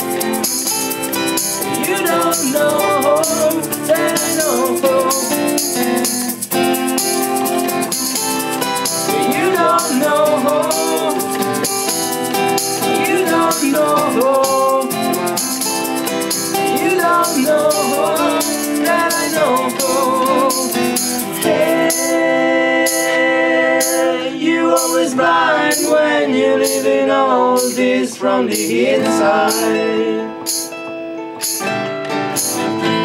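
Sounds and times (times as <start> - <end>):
tambourine shaking: 0.0 - 27.0, 27.6 - 30.8, 31.4 - 33.0
acoustic guitar strumming: 0.0 - 33.0
wordless sung vocals: 1.5 - 7.0, 9.0 - 15.8, 16.4 - 30.6.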